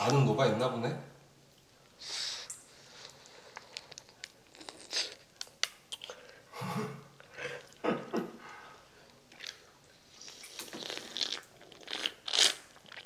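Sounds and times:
crunching chews: 10.3 - 13.0.

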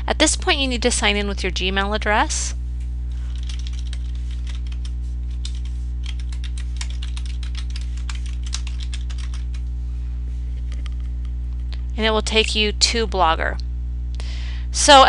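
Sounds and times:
low electrical hum: 0.0 - 15.0
keyboard typing: 3.3 - 9.6.

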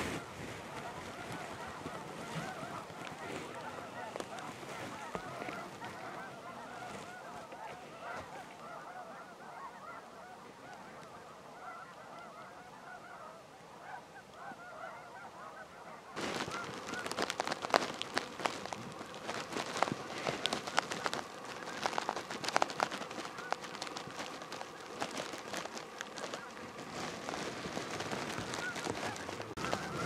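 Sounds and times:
loud crackling rustles: 0.0 - 13.2, 16.1 - 30.0
geese honking: 0.0 - 30.0.

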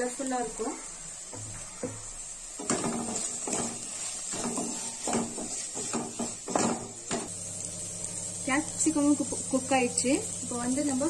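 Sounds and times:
vegetables frying hiss: 0.0 - 11.0
wooden spatula scraping a pan: 1.3 - 7.3.

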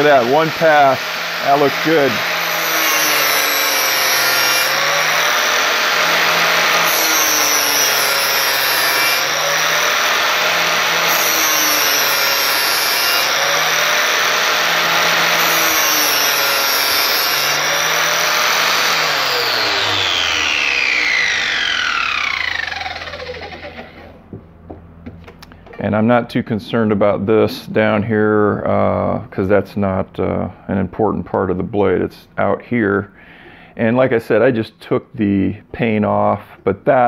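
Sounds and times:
angle grinder grinding steel: 0.0 - 24.2
grinder motor winding down: 0.0 - 24.3.

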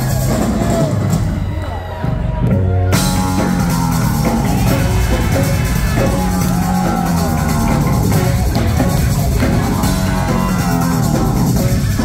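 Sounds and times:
rock band playing live: 0.0 - 12.0.

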